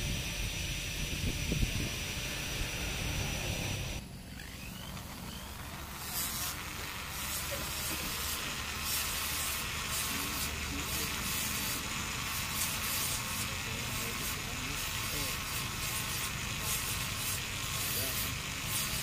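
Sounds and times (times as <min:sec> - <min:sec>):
rotary tool grinding wood: 0:00.0 - 0:19.0.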